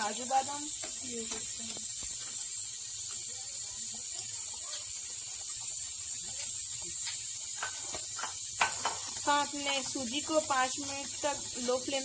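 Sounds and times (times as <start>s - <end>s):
food hissing in a pan: 0.0s - 12.0s
spatula scraping a pan: 4.2s - 12.0s.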